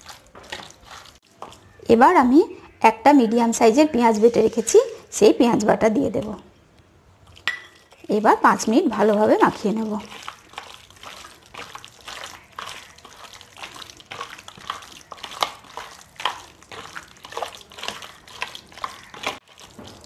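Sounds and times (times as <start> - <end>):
hands squelching marinade into meat: 0.0 - 1.9, 8.6 - 20.0.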